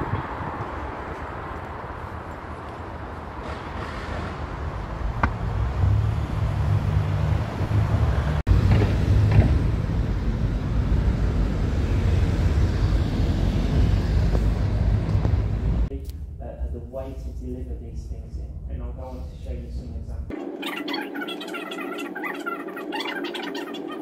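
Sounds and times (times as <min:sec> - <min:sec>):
low rumble of traffic: 0:00.0 - 0:20.6.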